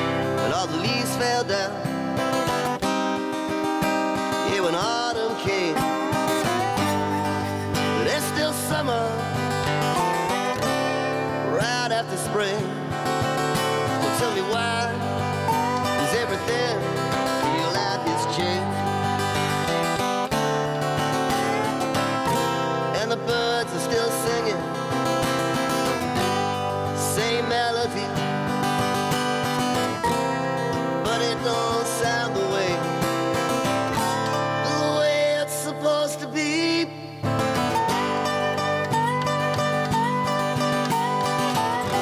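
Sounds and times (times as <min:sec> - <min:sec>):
acoustic guitars strummed: 0:00.0 - 0:42.0
person singing: 0:00.4 - 0:01.9, 0:03.4 - 0:28.3, 0:29.7 - 0:42.0.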